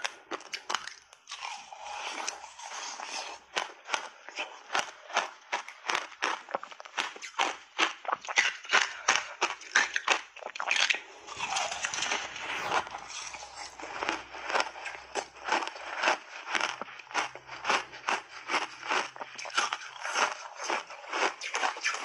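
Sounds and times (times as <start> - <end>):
ice being bitten and chewed: 0.0 - 22.0.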